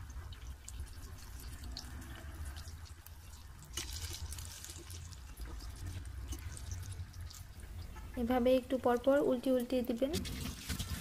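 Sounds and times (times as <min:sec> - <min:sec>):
batter deep-frying in hot oil: 0:00.0 - 0:11.0.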